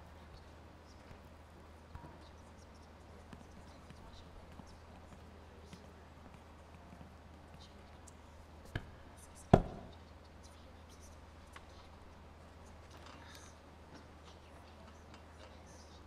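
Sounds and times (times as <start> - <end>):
faint low hum: 0.0 - 16.0
sharp knocks on hard surface: 9.5 - 9.9.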